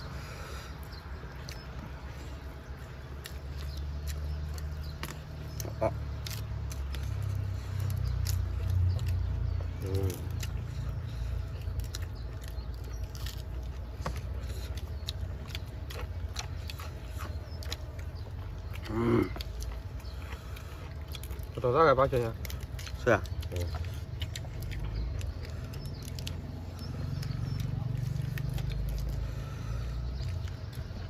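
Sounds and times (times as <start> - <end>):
chewing crunches: 0.0 - 31.0.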